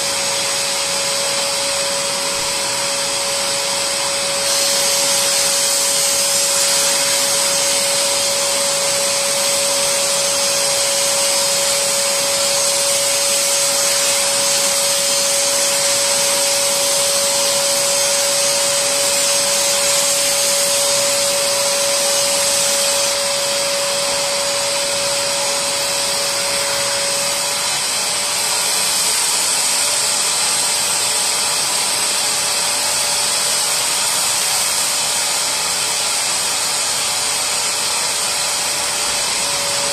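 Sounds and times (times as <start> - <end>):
suction motor whine: 0.0 - 39.9.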